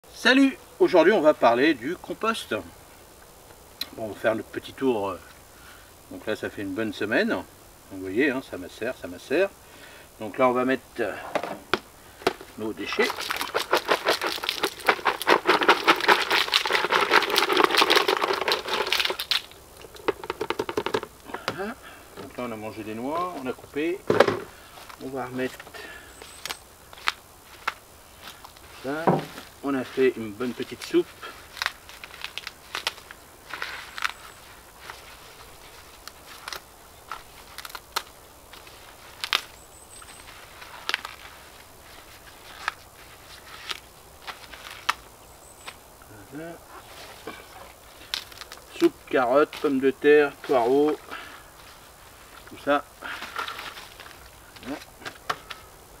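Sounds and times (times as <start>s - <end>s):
compost scraps crackling rattle: 11.0s - 55.8s
leek tops snapping: 16.2s - 20.1s, 26.3s - 28.7s, 30.6s - 35.0s, 36.0s - 39.6s, 40.3s - 41.4s, 43.6s - 45.8s, 48.0s - 48.8s.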